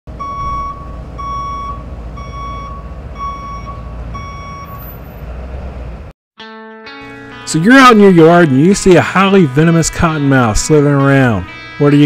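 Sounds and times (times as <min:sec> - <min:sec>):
truck reversing alarm beeping: 0:00.1 - 0:05.2
truck engine idling: 0:00.1 - 0:06.1.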